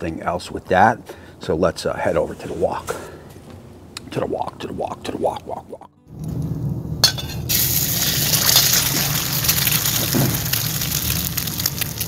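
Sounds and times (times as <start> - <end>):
eggs sizzling in hot oil: 7.1 - 12.0.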